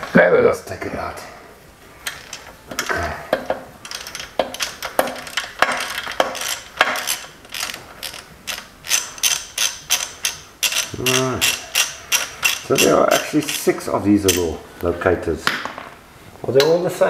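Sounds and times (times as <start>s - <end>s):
hand ratchet wrench clicking: 2.0s - 14.6s.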